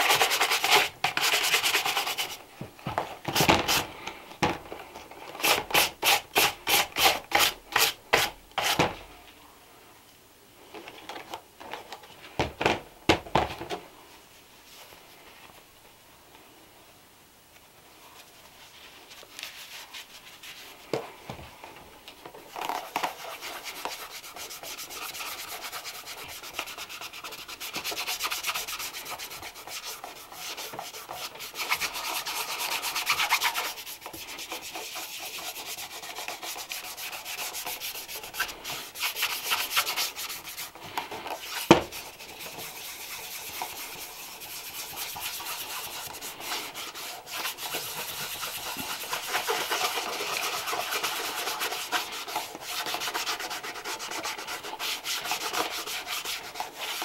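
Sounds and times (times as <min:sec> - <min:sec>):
rubbing strokes on leather shoe: 0:22.6 - 0:57.0.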